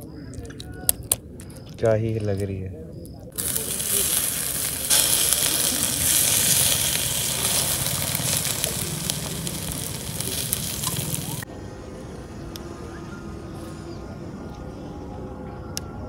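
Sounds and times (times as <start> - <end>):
water hissing on embers: 3.3 - 11.5.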